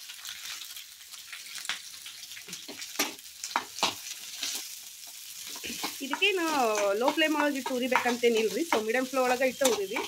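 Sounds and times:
onions sizzling in hot oil: 0.0 - 10.0
utensil scraping and knocking pan: 5.4 - 9.0.

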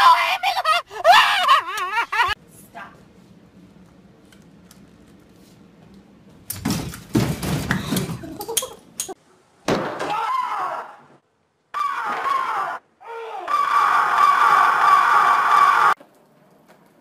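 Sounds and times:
person crying out: 0.0 - 2.4
furniture crashing and clattering: 6.6 - 8.3.

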